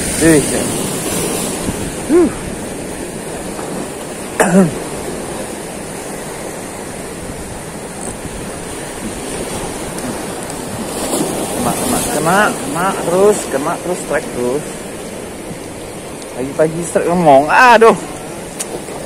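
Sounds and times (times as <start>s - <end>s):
sea surf washing over rocks: 0.0s - 19.0s
man exclaiming: 2.0s - 2.5s.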